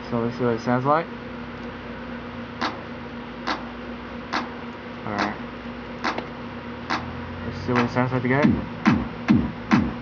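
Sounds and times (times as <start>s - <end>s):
electrical hum: 0.0s - 10.0s
hand-clap drum sample: 6.0s - 6.3s, 7.8s - 10.0s.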